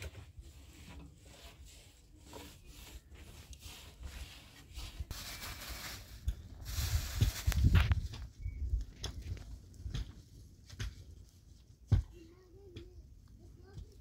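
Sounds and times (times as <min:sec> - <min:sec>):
tool scraping hard surface: 0:00.0 - 0:05.1.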